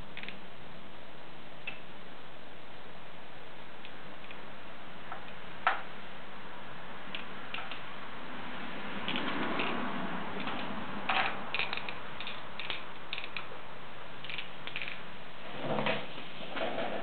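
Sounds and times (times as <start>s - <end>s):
steady background hiss: 0.0s - 17.0s
wooden sticks clicking and scraping: 7.1s - 7.9s, 9.0s - 13.6s, 14.2s - 15.0s.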